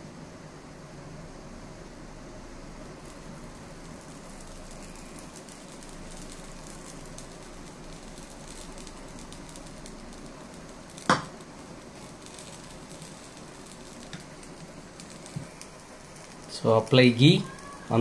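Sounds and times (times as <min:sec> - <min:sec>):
bread sizzling in a pan: 0:01.0 - 0:18.0.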